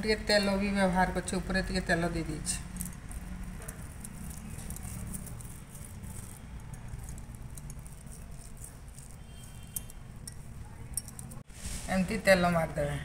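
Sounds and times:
hands kneading dough: 0.0s - 12.7s
glass bangles clinking: 1.8s - 11.5s.

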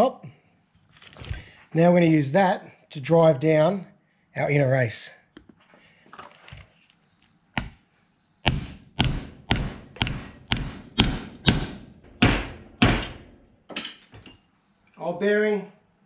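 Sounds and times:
hammer striking plastic block: 8.4s - 13.4s.

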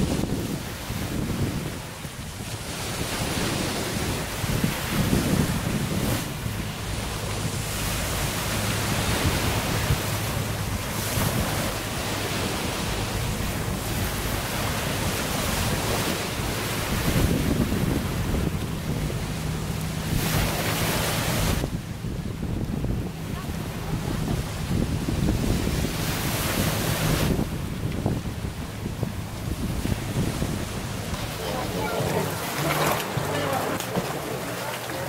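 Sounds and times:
waves washing on pebbles: 0.0s - 35.0s
wind buffeting microphone: 0.0s - 35.0s.

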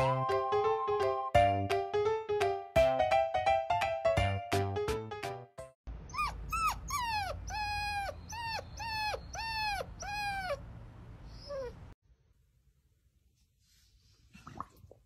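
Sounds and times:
puppy whimpering: 6.1s - 10.6s, 11.3s - 12.0s.

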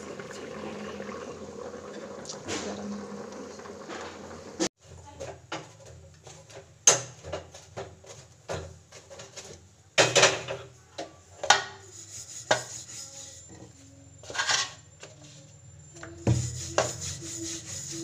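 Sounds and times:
pots and pans clattering: 3.9s - 10.8s.

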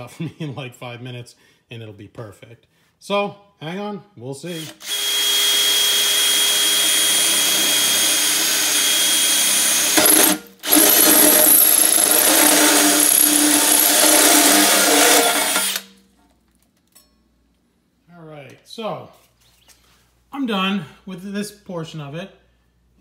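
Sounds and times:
drill cutting through metal sheet: 4.6s - 16.0s.

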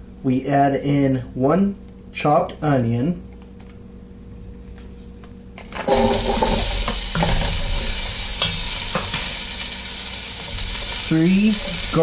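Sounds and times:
onion sizzling in hot oil: 5.7s - 12.0s
wooden spoon stirring and knocking pot: 5.8s - 9.4s, 10.4s - 12.0s.

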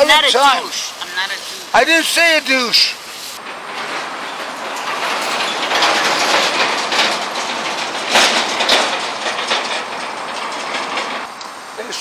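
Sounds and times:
rushing street noise: 0.0s - 12.0s
sharp metal clanks: 3.4s - 11.4s.

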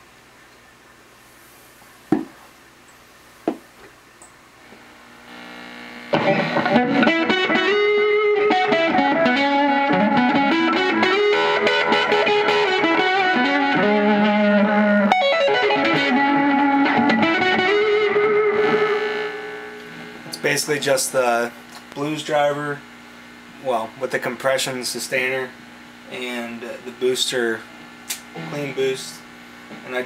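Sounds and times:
electric guitar lead lines: 4.7s - 30.0s
backing chords: 6.2s - 20.6s.

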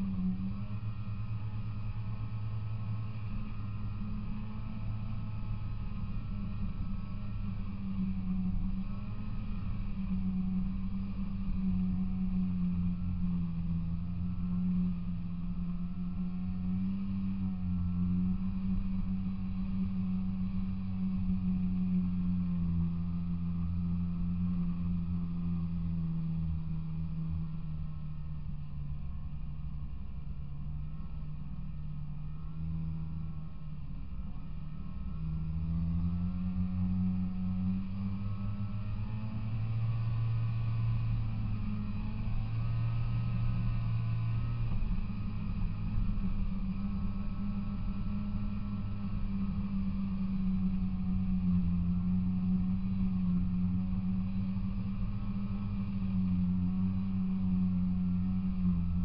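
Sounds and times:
snowmobile two-stroke engine running: 0.0s - 59.0s
snowmobile engine running: 34.8s - 59.0s.

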